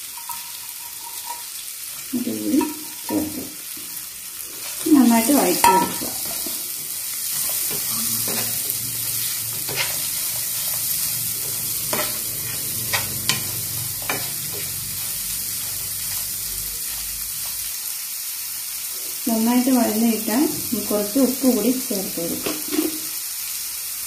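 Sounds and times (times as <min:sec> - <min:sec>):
spatula scraping pan: 0:00.0 - 0:17.7
shallots sizzling in oil: 0:00.0 - 0:24.0.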